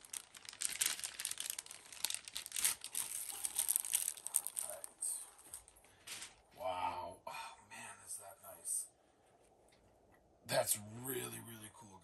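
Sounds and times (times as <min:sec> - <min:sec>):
plastic bag crinkling: 0:00.0 - 0:06.5.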